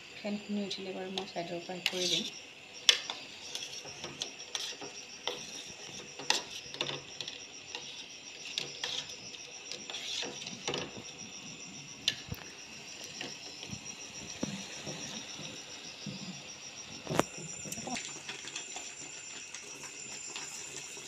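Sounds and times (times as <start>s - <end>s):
metal spoon scraping steel pot: 1.8s - 2.3s, 7.9s - 10.6s.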